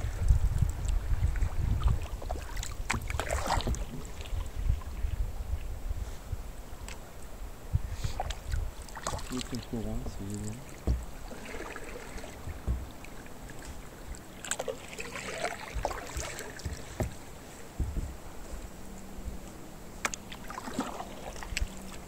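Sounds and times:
paddle splashing in water: 0.0 - 5.2, 7.9 - 22.0
light knocks: 10.0 - 11.3, 12.2 - 13.8, 15.8 - 18.2.

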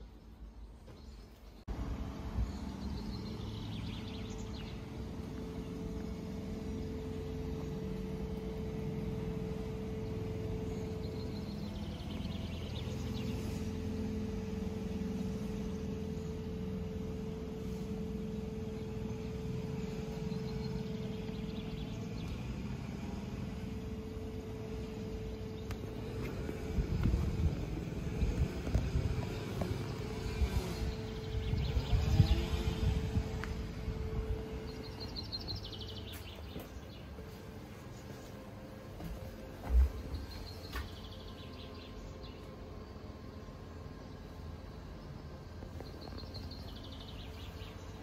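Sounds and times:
birds chirping: 0.0 - 48.0
machine hum: 0.0 - 48.0
low rumble: 18.4 - 36.0.

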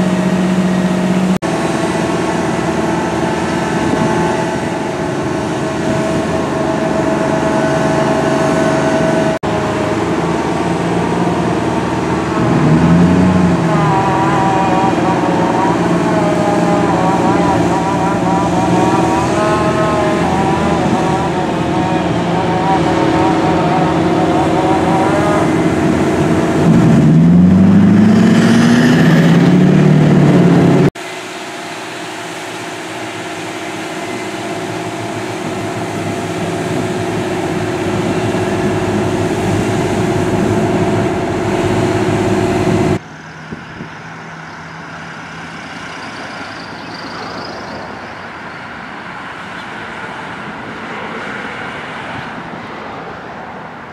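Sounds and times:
fire engine pumps running: 0.0 - 53.9
siren wailing: 1.5 - 30.9, 33.8 - 49.0.

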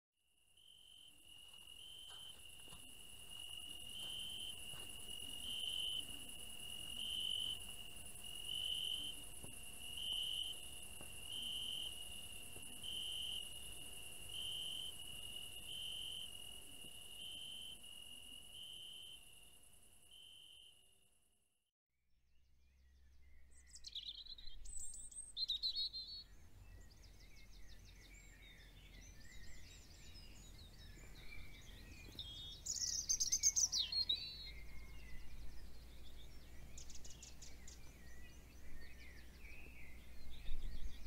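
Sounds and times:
crickets chirping: 0.4 - 20.9, 27.2 - 41.0
high insect trill: 0.5 - 20.8.

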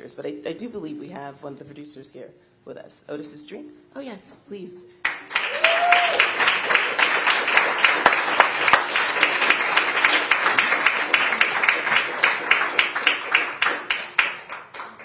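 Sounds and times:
audience applauding: 5.0 - 15.0.

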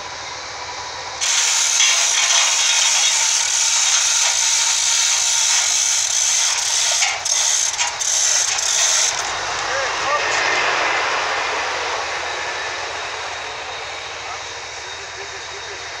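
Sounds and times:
power saw cutting timber: 1.2 - 10.4.

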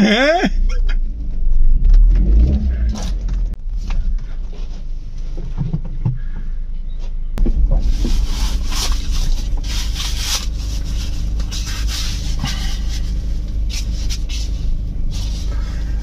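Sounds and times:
low car cabin rumble: 0.0 - 16.0
rubber mask rustling: 7.4 - 16.0.

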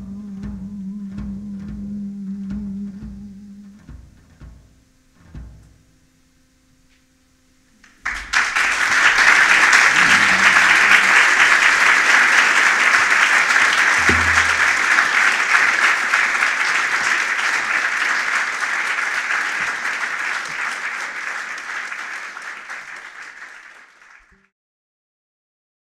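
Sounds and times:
audience applauding: 7.8 - 24.5.

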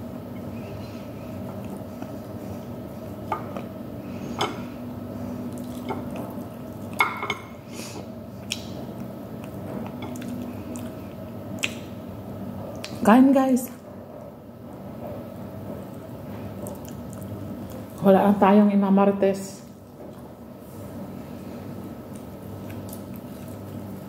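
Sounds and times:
steady background hum: 0.0 - 24.0
chewing and mouth smacks: 5.5 - 7.0, 8.4 - 12.0, 15.8 - 18.0, 22.0 - 24.0.

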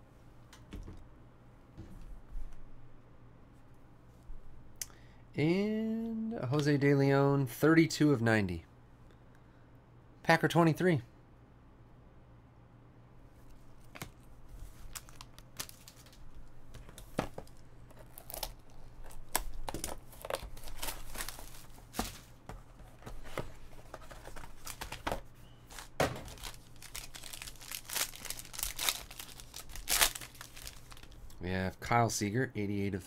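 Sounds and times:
plastic and foil wrapper crinkling: 14.8 - 16.5, 17.4 - 22.2, 23.7 - 31.4.

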